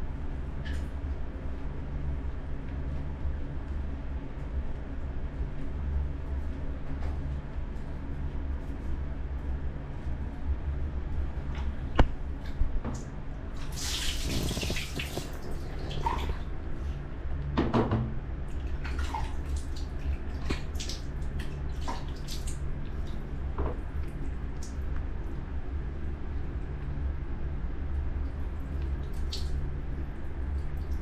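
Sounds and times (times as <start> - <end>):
steady low hum: 0.0 - 31.0
water splashing and pouring: 13.6 - 16.4.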